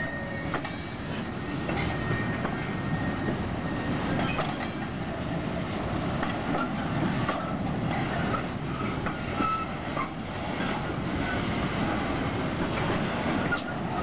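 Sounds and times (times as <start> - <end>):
high wheel squeals: 0.0 - 0.9, 1.5 - 6.2, 7.8 - 10.2
train wheels rumbling on rails: 0.0 - 14.0.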